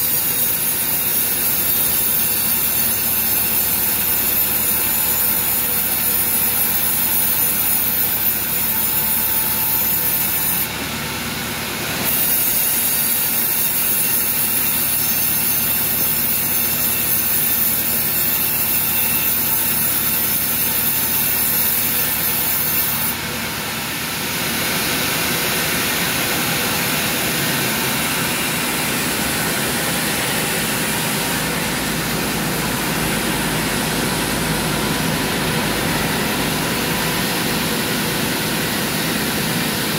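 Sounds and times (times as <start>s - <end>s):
saw blade cutting log: 0.0s - 10.8s, 11.8s - 39.9s
saw machinery humming: 0.0s - 39.9s.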